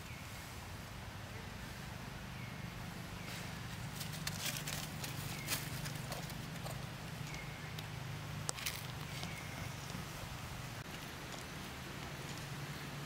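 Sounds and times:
dry leaves crackling underfoot: 3.2 - 12.8.

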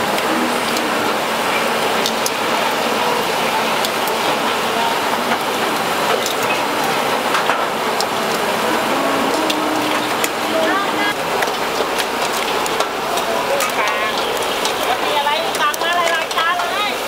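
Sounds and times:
seafood sizzling on a grill: 11.1 - 17.0.

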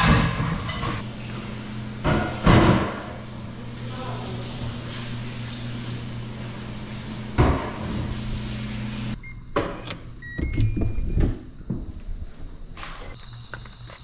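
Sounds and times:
keypad beeps: 10.2 - 11.2.

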